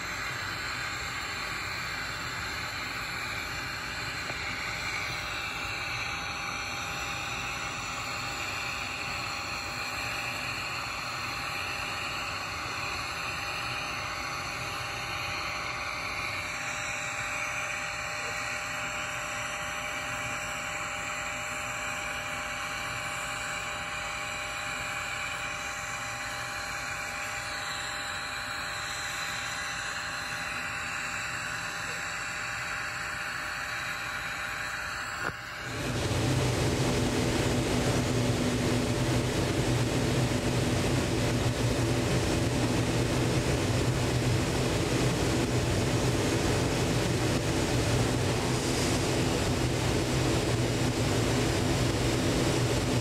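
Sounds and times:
welding arc hissing: 0.0 - 17.4, 30.0 - 53.0
faint steady hum: 0.0 - 53.0.

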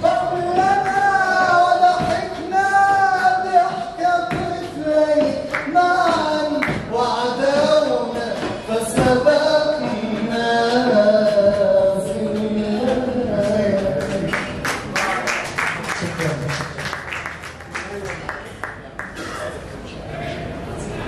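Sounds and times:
man singing into microphone: 0.0 - 14.6.

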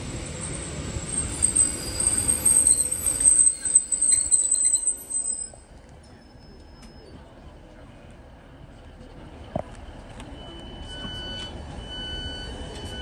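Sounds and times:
train running gear rumbling: 0.0 - 13.0
high-pitched brake squeal: 0.3 - 7.3, 10.4 - 13.0.

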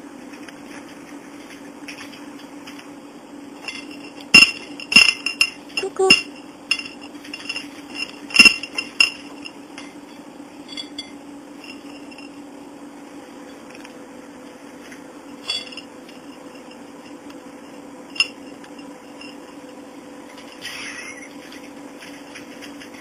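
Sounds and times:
faint steady hum: 0.0 - 23.0
toys clinking on ceramic plate: 3.6 - 9.9, 15.4 - 15.9.

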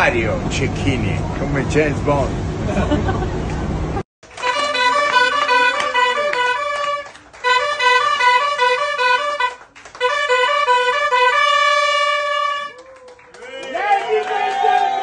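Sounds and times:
hand-held horn playing a tune: 4.3 - 12.8.

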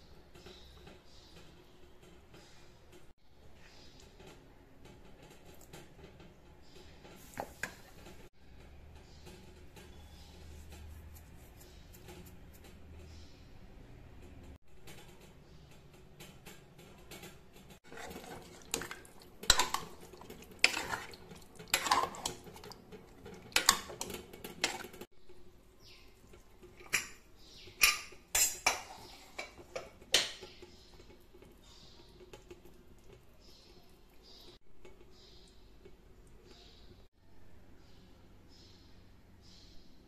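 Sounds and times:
metal clinking against pot: 18.0 - 25.1.

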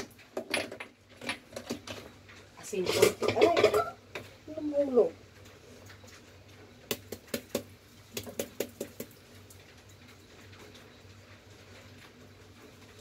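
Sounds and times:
plastic shaker clicking and tapping: 6.9 - 9.1.

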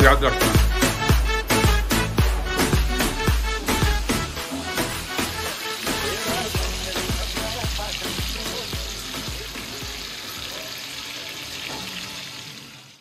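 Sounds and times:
background music with bass beat: 0.0 - 10.1
kebabs sizzling in a pan: 0.0 - 13.0.

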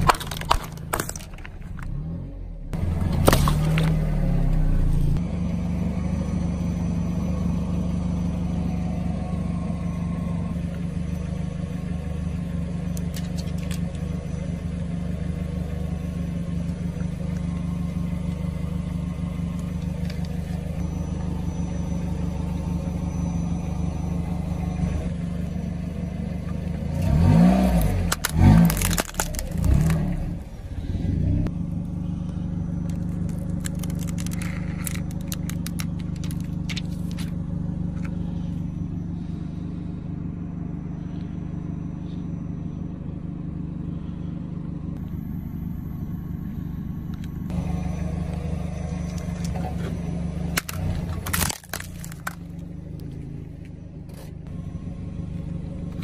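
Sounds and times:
car engine idling and revving: 0.0 - 56.0
tyre cracking a phone: 50.6 - 52.5.

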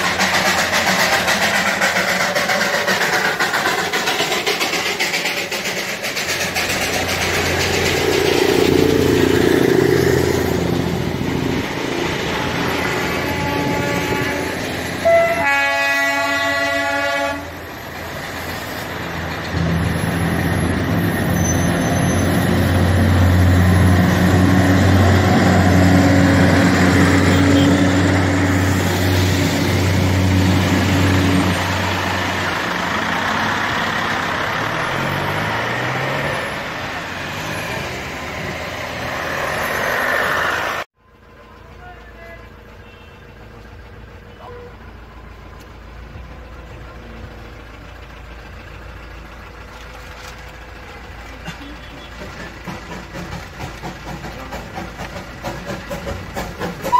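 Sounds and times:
diesel locomotive engine running: 0.0 - 56.9
train horn: 12.2 - 17.6.

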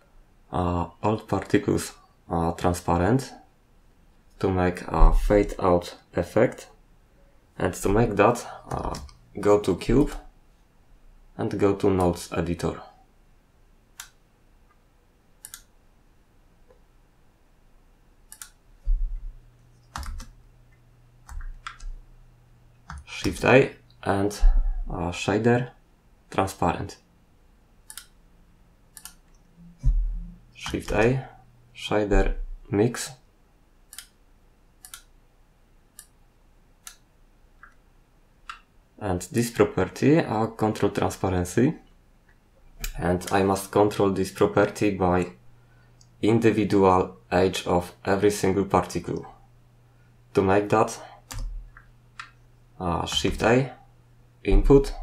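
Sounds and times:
faint low hum: 0.0 - 55.0
computer mouse clicks: 14.0 - 14.2, 15.4 - 15.7, 18.3 - 18.6, 21.2 - 22.0, 27.8 - 28.2, 28.9 - 29.5, 33.9 - 34.2, 34.8 - 35.1
loud low thump: 29.8 - 30.3.

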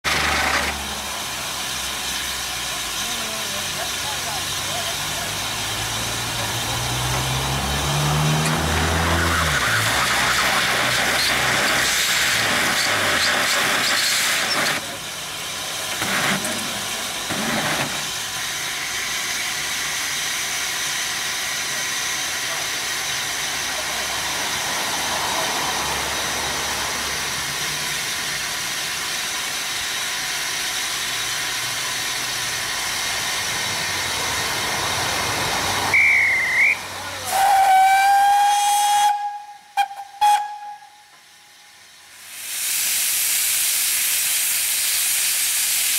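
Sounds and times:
steam hissing: 0.0 - 45.9
steam whistle: 35.8 - 41.8
warbling high whistle: 35.9 - 41.1.

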